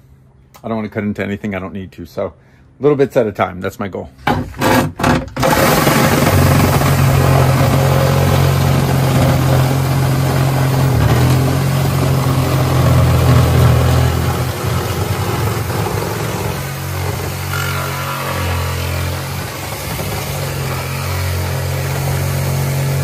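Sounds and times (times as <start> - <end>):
reciprocating saw cutting: 4.6 - 23.0.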